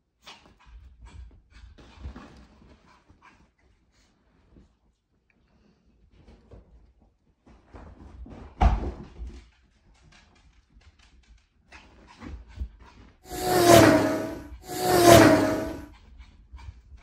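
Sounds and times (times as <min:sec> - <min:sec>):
loud sustained pitched sound: 0:13.3 - 0:15.9.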